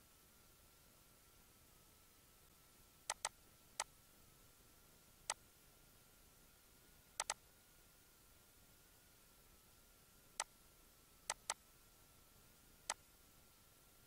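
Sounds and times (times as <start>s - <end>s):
computer mouse clicking: 3.1s - 3.4s, 7.2s - 7.4s, 11.3s - 11.6s.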